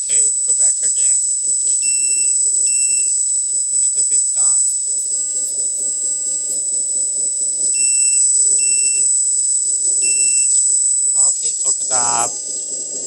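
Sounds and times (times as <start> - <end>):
short high beeps: 0.0 - 5.3, 6.6 - 11.7.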